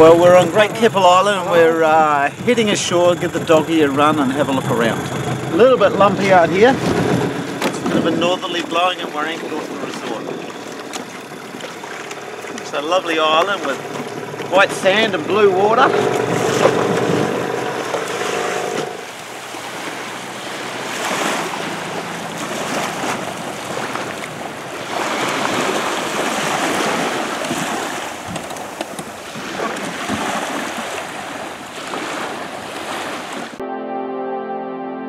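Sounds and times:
wind noise on microphone: 0:00.0 - 0:11.5
outboard motor running: 0:00.0 - 0:33.6
water sounds: 0:00.0 - 0:34.6.

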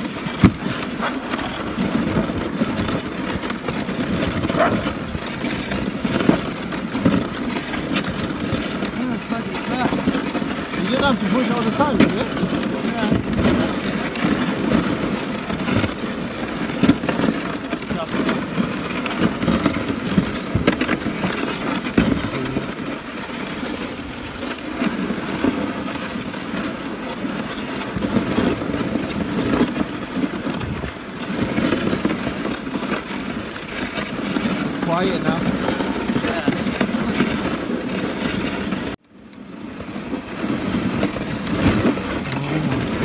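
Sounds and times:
sled runners scraping on snow: 0:00.0 - 0:43.0.

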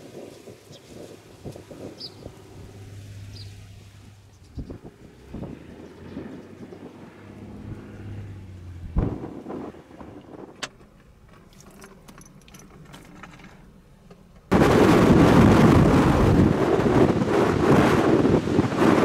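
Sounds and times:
strong gusting wind on microphone: 0:00.0 - 0:10.6, 0:14.5 - 0:19.0.

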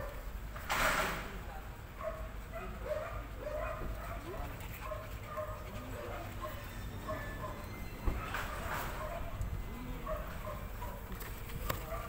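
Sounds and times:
dog whining: 0:04.8 - 0:11.0.

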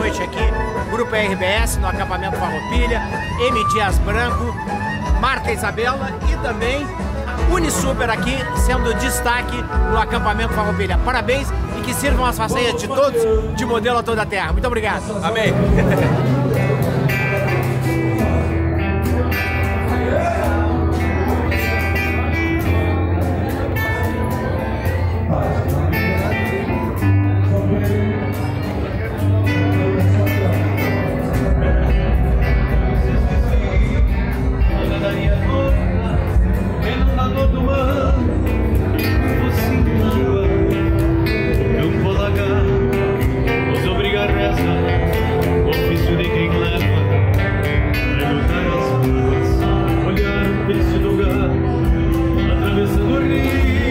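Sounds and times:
man singing: 0:00.0 - 0:19.3, 0:19.9 - 0:21.7, 0:23.7 - 0:53.9
accordion notes: 0:00.0 - 0:53.9
bass guitar line: 0:00.0 - 0:53.9
acoustic guitar strummed: 0:15.4 - 0:53.9.

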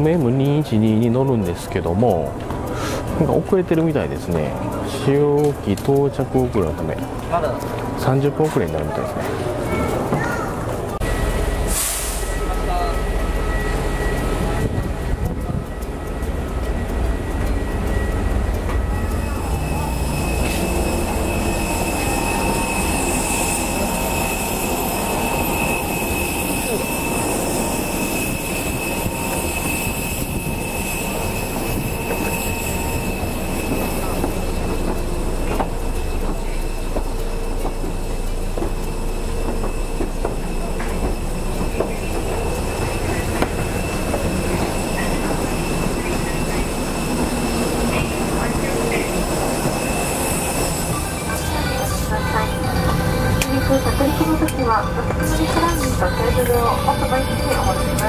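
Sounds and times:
jet engine whine: 0:10.9 - 0:58.0
footsteps on metal stairs: 0:28.9 - 0:52.0.

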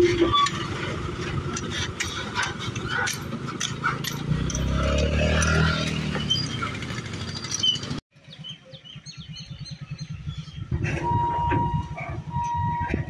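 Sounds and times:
truck engine rumbling: 0:00.0 - 0:13.0
vehicle engine idling: 0:00.6 - 0:13.0
birds chirping: 0:03.9 - 0:12.6.

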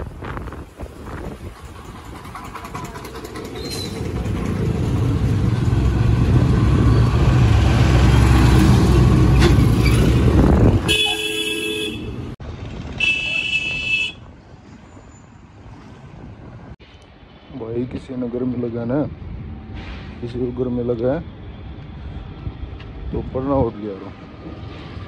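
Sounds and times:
truck diesel engine rumbling: 0:00.0 - 0:14.1
vehicle horn honking: 0:10.8 - 0:12.3, 0:13.0 - 0:14.2.

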